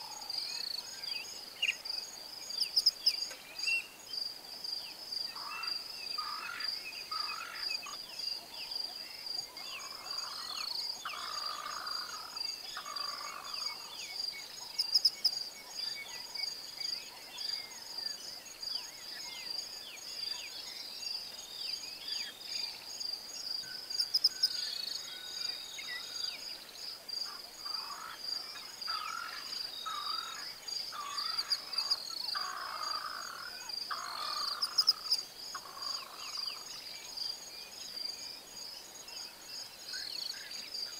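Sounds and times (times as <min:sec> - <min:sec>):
high-pitched insect chorus: 0:00.0 - 0:40.9
bird calls: 0:05.3 - 0:20.8, 0:27.2 - 0:37.1.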